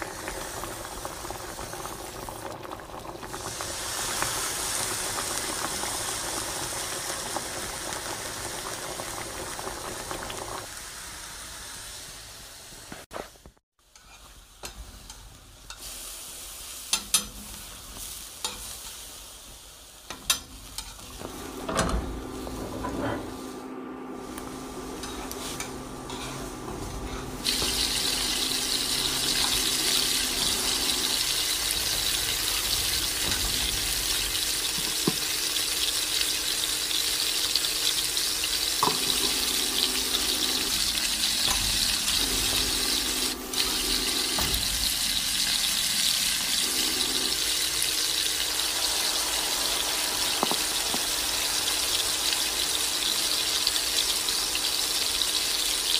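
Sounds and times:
tap water running into sink: 38.8s - 48.0s, 49.8s - 52.7s.

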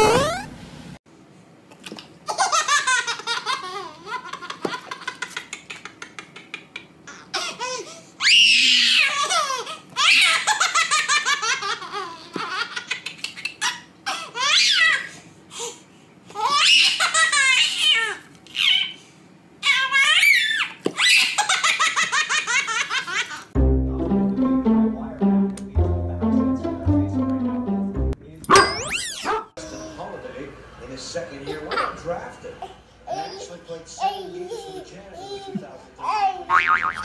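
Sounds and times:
baby laughing: 2.3s - 7.8s, 9.0s - 15.1s.

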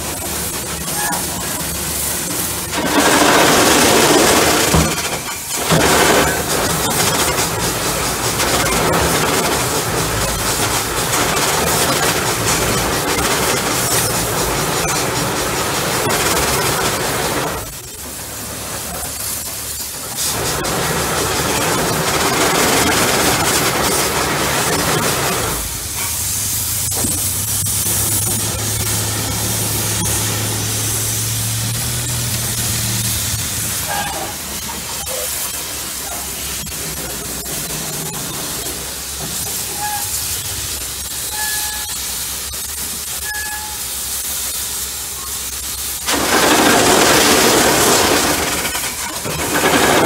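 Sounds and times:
machinery humming: 0.0s - 50.0s
steam hissing: 0.0s - 50.0s
short high squeaks: 0.8s - 1.6s, 33.8s - 35.4s, 39.5s - 40.3s, 41.3s - 42.0s, 43.2s - 44.0s.

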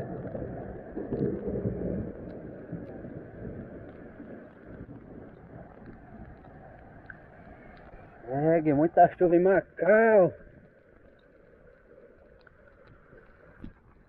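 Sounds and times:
low rumble of thunder: 0.0s - 6.6s
heavy rain: 0.0s - 14.0s.

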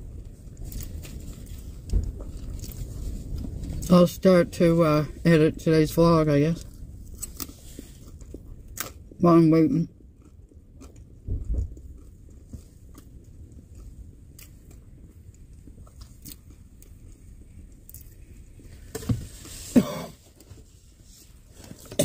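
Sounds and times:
faint low hum: 0.0s - 22.0s
person chewing: 0.1s - 3.9s, 6.6s - 9.2s, 9.9s - 20.7s.

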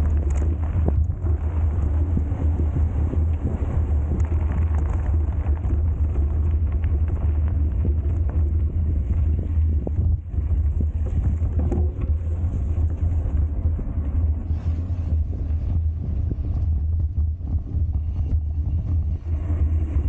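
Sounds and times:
bike knocks and rattles: 0.0s - 14.6s
wind buffeting microphone: 0.0s - 20.0s.

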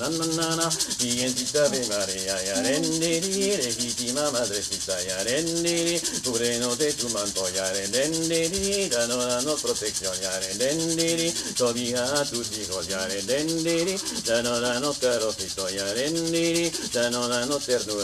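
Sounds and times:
man singing a slow chant: 0.0s - 18.0s
rattle shaken rhythmically: 0.0s - 18.0s.

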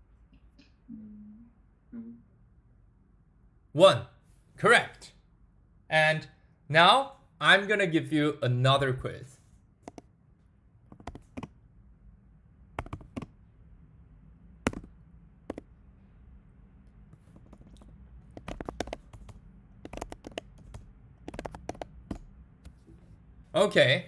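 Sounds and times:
low steady hum: 0.0s - 24.0s
computer keyboard typing: 9.8s - 10.1s, 10.9s - 11.5s, 12.8s - 13.3s, 14.7s - 15.7s, 17.2s - 22.3s.

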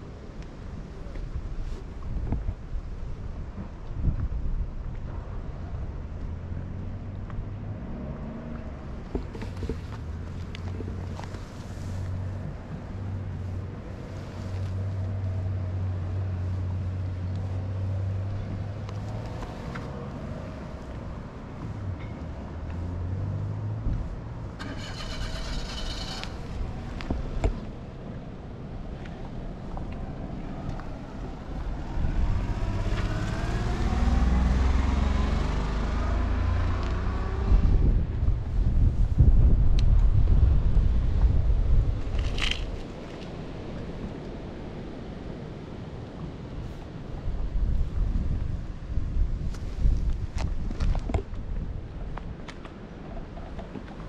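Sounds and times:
wind buffeting microphone: 0.1s - 7.5s, 22.6s - 54.0s
motor engine passing by: 24.6s - 26.6s, 31.1s - 38.0s.

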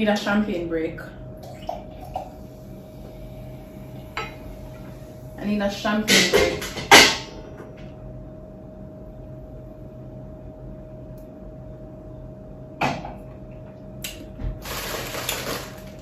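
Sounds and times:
faint room hum: 0.0s - 16.0s
plastic package rustling: 14.6s - 16.0s.

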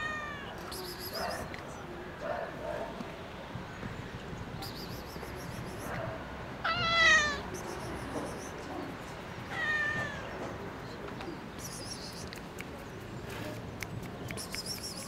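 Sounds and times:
cat meowing: 0.0s - 0.7s, 6.6s - 7.6s, 9.5s - 10.4s.

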